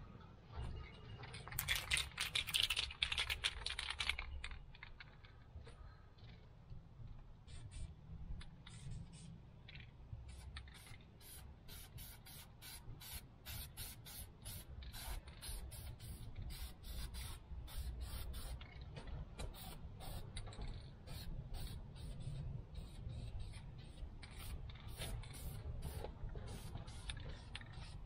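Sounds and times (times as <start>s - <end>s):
spray paint can hissing: 7.5s - 7.9s, 10.3s - 18.6s, 19.5s - 20.3s, 21.0s - 28.0s.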